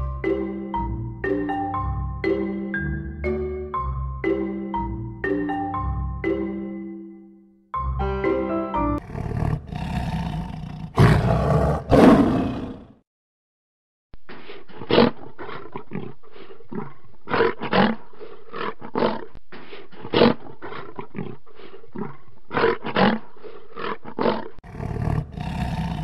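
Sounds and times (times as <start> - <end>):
lion roaring: 9.0 - 13.0, 23.8 - 26.0.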